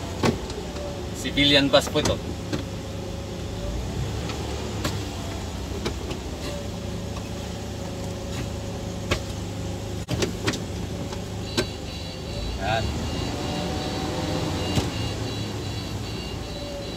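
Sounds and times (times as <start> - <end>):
bus engine humming: 0.0 - 16.9.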